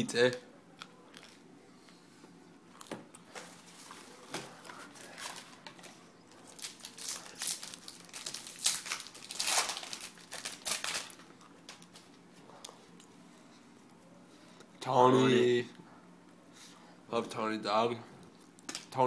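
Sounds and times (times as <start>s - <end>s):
card pack wrapper crinkling: 6.4s - 12.0s.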